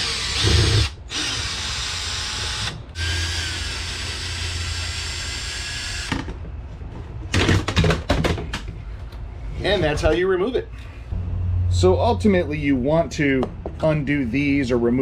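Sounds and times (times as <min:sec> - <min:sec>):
cordless drill running: 0:00.0 - 0:06.1.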